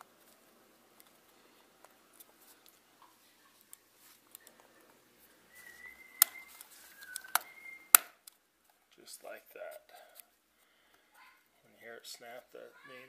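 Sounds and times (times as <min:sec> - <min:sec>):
plastic part snapping: 0:06.2 - 0:08.4.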